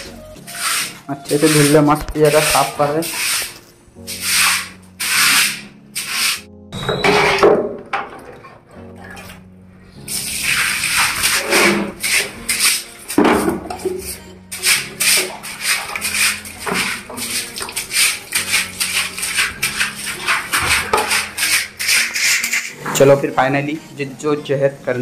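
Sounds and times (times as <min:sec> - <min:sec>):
scrub brush scrubbing wet tiles: 0:00.0 - 0:06.5, 0:10.0 - 0:23.3.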